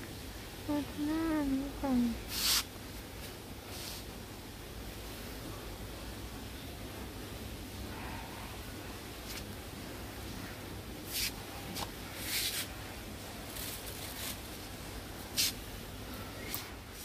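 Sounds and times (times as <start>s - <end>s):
hissy rustles: 2.2s - 4.2s, 11.0s - 15.8s.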